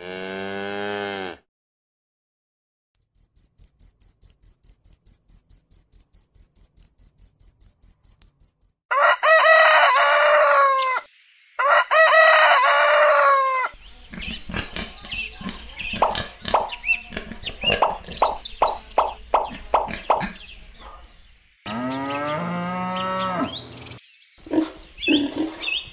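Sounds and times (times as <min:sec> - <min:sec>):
cricket chirping: 0:03.0 - 0:08.9
rooster crowing: 0:08.9 - 0:13.8.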